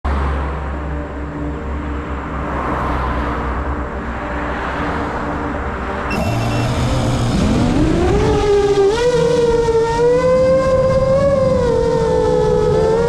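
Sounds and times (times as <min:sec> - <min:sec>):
cars driving past: 0:00.1 - 0:13.0
low hum: 0:05.8 - 0:13.0
high beeps: 0:06.1 - 0:08.5.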